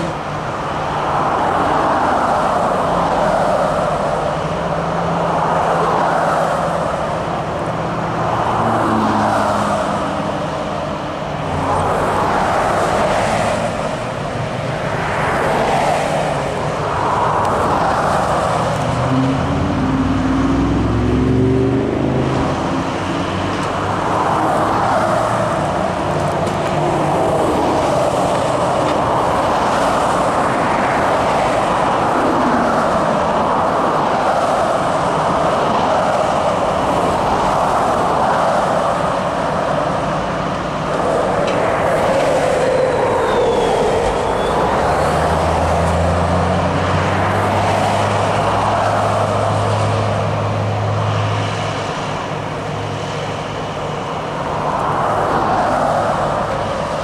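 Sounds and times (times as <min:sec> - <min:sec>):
highway traffic rushing: 0:00.0 - 0:57.0
deep engine passing: 0:08.2 - 0:26.2.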